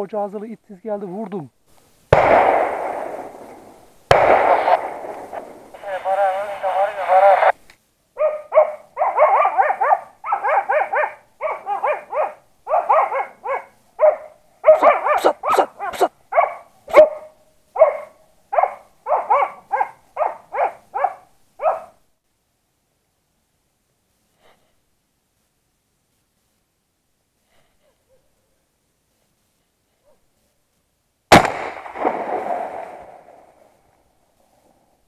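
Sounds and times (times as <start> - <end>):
sharp cracks: 2.1 - 6.2, 31.3 - 34.0
dogs barking: 8.2 - 22.0.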